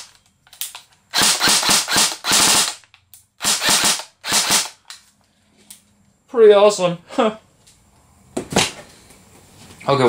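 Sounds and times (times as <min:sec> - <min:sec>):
airsoft gun firing bursts: 0:01.1 - 0:02.8, 0:03.4 - 0:04.8.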